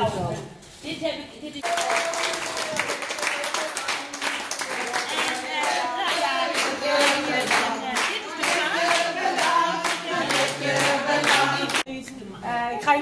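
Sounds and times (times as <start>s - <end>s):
group clapping in time: 1.6s - 11.9s
people singing together: 3.3s - 11.9s.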